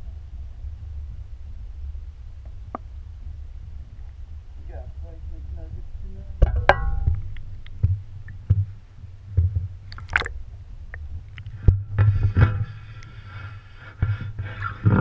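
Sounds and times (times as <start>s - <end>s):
muffled water sloshing: 9.7s - 13.8s.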